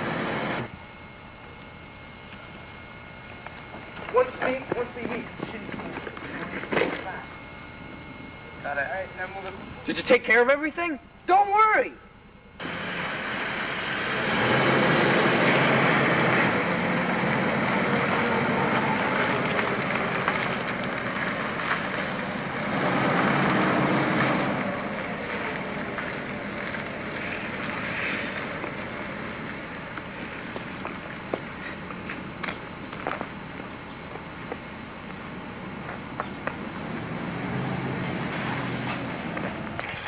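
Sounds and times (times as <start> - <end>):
car driving off: 0.0 - 0.7, 12.6 - 30.9, 36.6 - 40.0.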